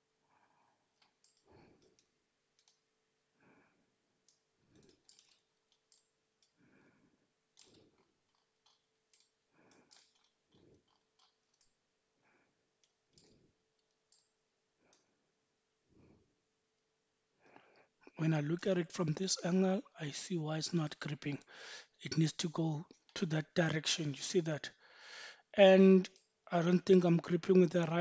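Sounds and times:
computer mouse clicks: 1.0s - 2.9s.

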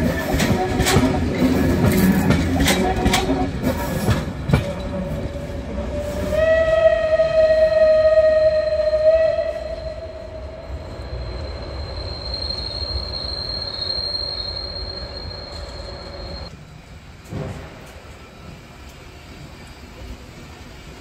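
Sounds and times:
high squeal of train wheels: 0.0s - 16.5s
steam locomotive whistle: 5.4s - 16.5s.

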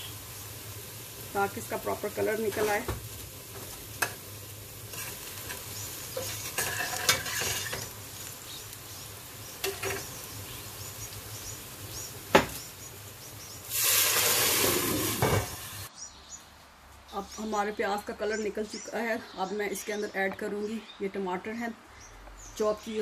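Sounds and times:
onions sizzling in oil: 0.0s - 15.9s
water hissing in hot oil: 0.0s - 15.9s.

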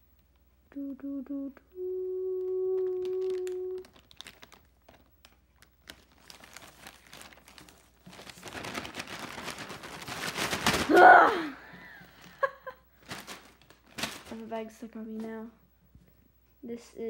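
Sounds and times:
person humming: 0.7s - 3.9s
plastic mailer bag crinkling: 2.7s - 11.0s, 12.2s - 14.8s.

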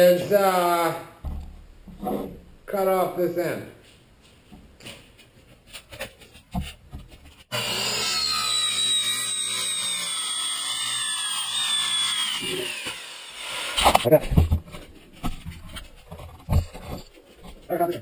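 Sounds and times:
circular saw cutting: 7.5s - 14.1s.

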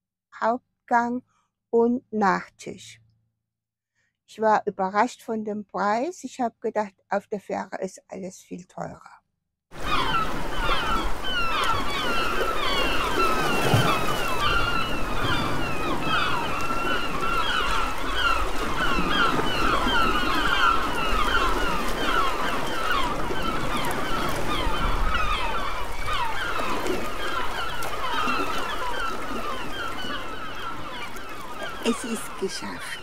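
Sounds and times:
gulls calling: 9.8s - 33.0s
sea water washing: 9.8s - 33.0s.

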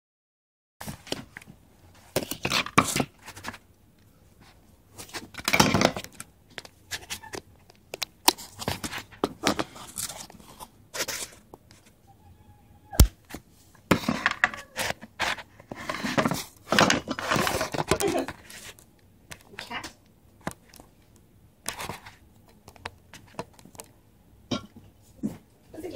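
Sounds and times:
camera handling rustling and scraping: 5.0s - 12.0s, 21.6s - 23.9s.

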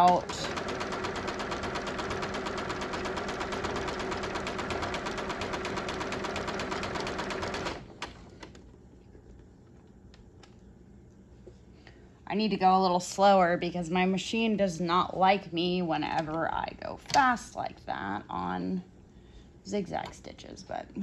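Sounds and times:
sewing machine stitching fast: 0.0s - 7.9s.

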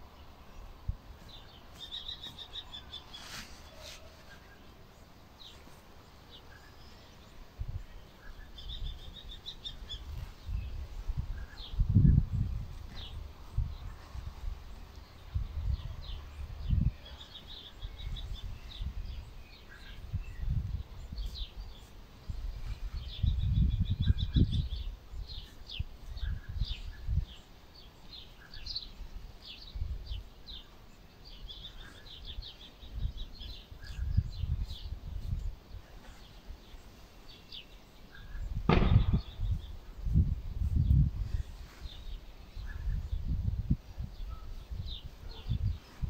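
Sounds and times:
small birds chirping: 0.0s - 46.0s
wind buffeting microphone: 6.8s - 27.4s, 31.2s - 36.0s, 38.2s - 46.0s
burst of noise: 38.6s - 39.4s.

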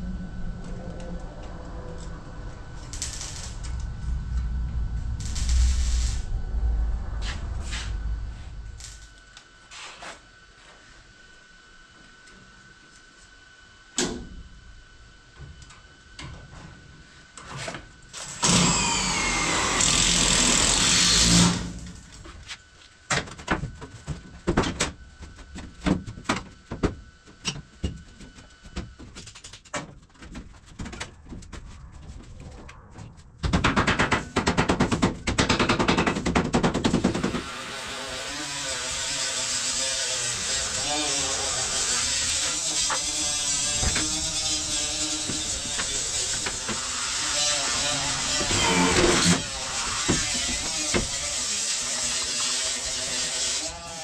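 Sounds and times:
power drill driving screws: 18.2s - 21.8s, 48.3s - 49.4s.

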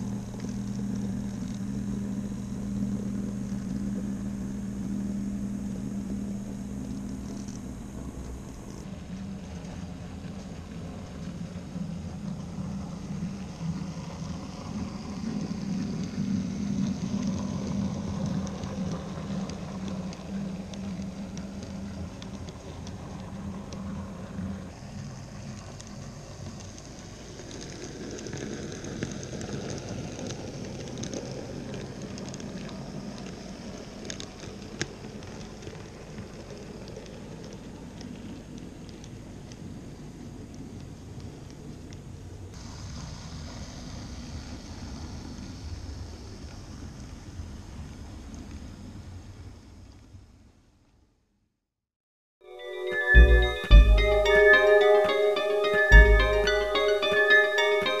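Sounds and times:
faint clicks: 0.0s - 8.9s
model train motor hum: 0.0s - 39.0s
small wheels rolling on track: 0.0s - 50.2s.

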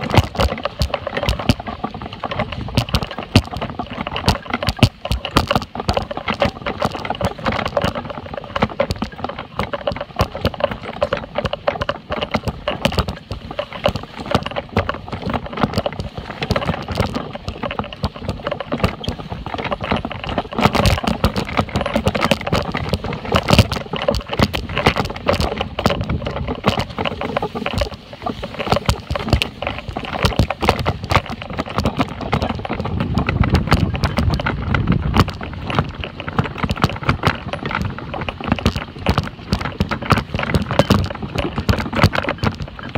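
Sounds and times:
wagon rattling over rough grass: 0.0s - 42.9s.

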